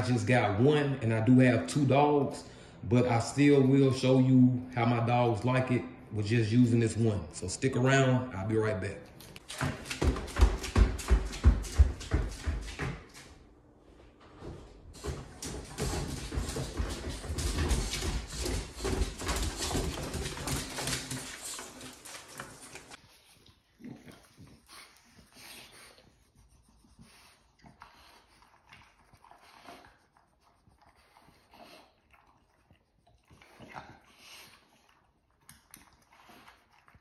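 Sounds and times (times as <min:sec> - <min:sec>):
footsteps and paws on stairs: 0:09.4 - 0:23.0
dogs eating crunching food: 0:15.0 - 0:25.5, 0:27.6 - 0:37.0.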